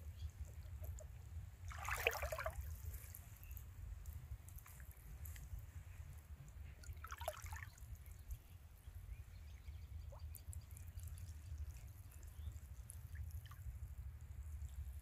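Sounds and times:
water drips: 1.7s - 3.1s, 6.5s - 8.3s, 10.0s - 15.0s.

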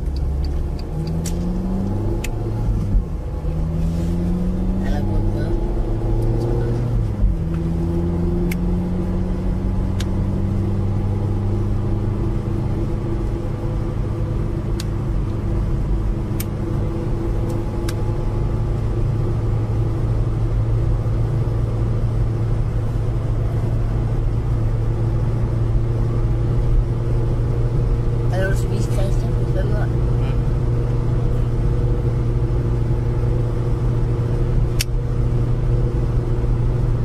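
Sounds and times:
sharp clicks: 0.0s - 2.4s
car engine running: 0.0s - 37.0s
tyre and road noise: 0.0s - 37.0s.

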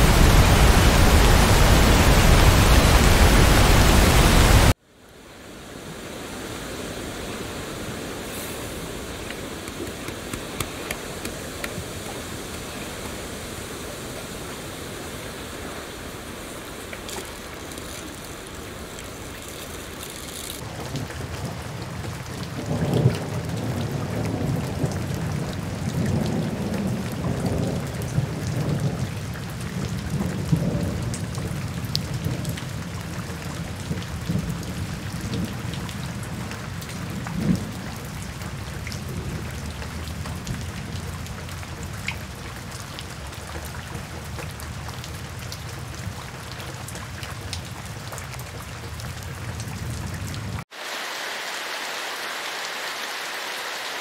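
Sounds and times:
steady rain: 0.0s - 54.0s
low rolling thunder: 20.6s - 33.0s.

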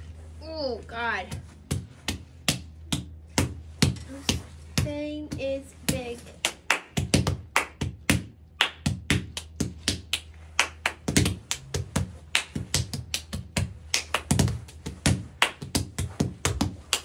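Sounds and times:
faint low hum: 0.0s - 17.0s
hands patting and slapping: 1.3s - 17.0s.

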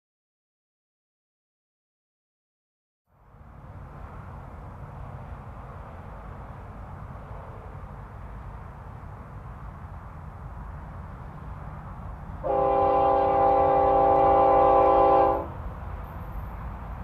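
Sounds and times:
locomotive air horn: 12.4s - 15.6s.

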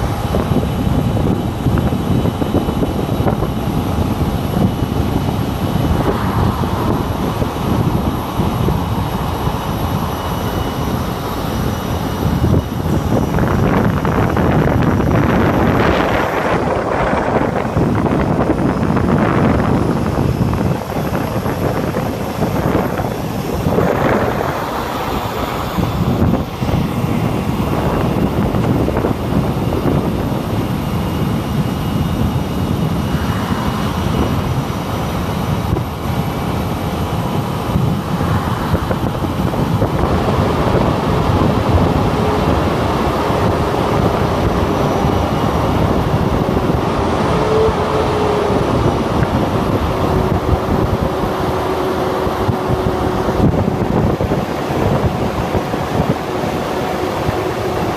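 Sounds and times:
faint steady whine: 0.0s - 57.9s
vehicle engine tyre and wind noise: 0.0s - 57.9s.

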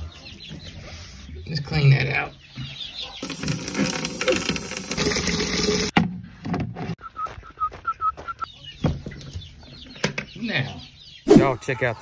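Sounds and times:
chicks peeping: 0.0s - 4.0s, 7.1s - 12.0s.

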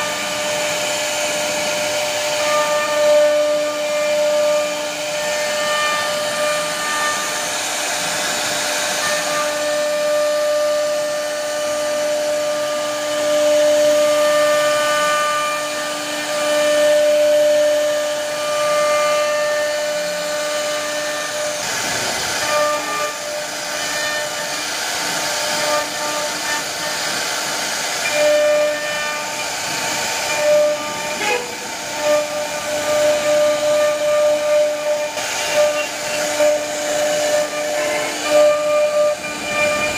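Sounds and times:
router spindle cutting wood: 0.0s - 39.9s.

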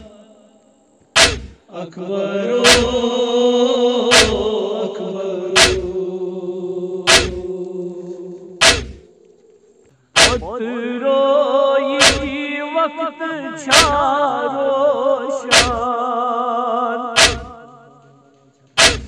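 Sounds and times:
sharp percussive beats: 1.2s - 1.6s, 4.1s - 4.4s, 5.6s - 5.8s, 7.1s - 7.4s, 8.6s - 9.1s, 10.2s - 10.5s, 12.0s - 12.3s, 15.5s - 15.8s, 17.2s - 17.6s
man singing a lament: 1.7s - 9.1s, 10.2s - 18.3s.

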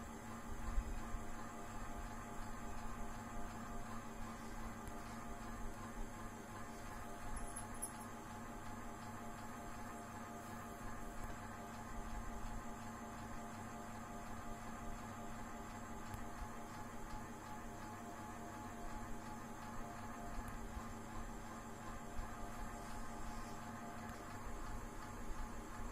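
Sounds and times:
steady hum: 0.0s - 25.9s.

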